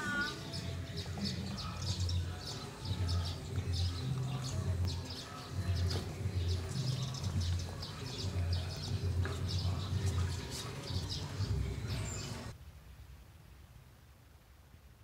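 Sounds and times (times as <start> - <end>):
small birds chirping: 0.0 - 12.6.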